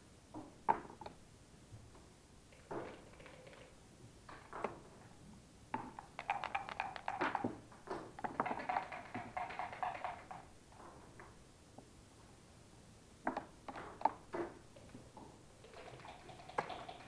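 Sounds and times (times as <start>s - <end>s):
checkers clacking on board: 6.0s - 7.6s, 8.2s - 10.5s, 15.7s - 17.0s
dice rattling in a cup: 6.2s - 7.4s, 8.3s - 10.5s, 15.8s - 17.0s.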